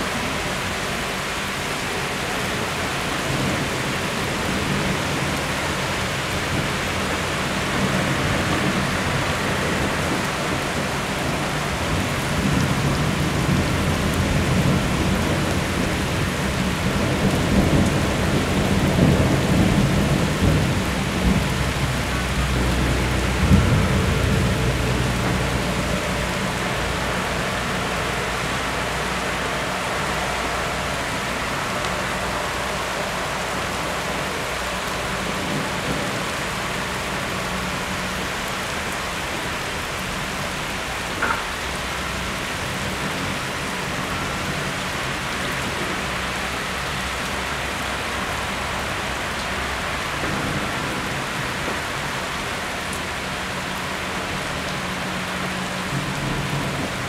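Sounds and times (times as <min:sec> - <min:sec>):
heavy rain hissing: 0:00.0 - 0:57.0
thunder rolling: 0:03.3 - 0:38.0.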